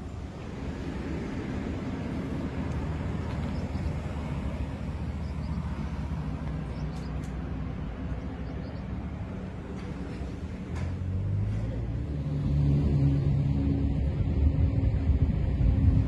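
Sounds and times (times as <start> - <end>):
vehicle engine idling: 1.5 - 12.0.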